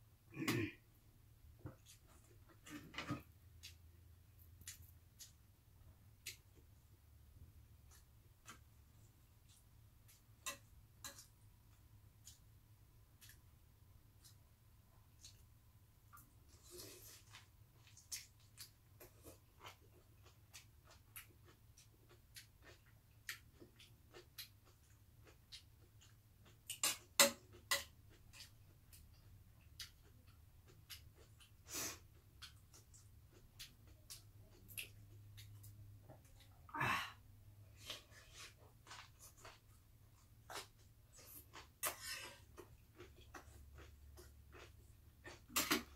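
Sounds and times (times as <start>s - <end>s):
person chewing: 1.8s - 5.5s, 6.1s - 6.8s, 7.8s - 13.5s, 14.1s - 15.5s, 16.1s - 36.5s, 37.7s - 45.9s
chewing and lip smacks: 4.4s - 5.5s, 6.2s - 6.7s, 27.5s - 36.5s.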